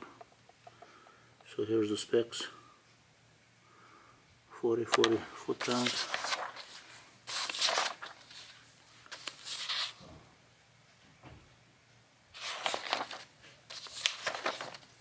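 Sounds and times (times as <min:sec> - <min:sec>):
paper pages rustling: 0:04.9 - 0:10.0, 0:12.4 - 0:15.0.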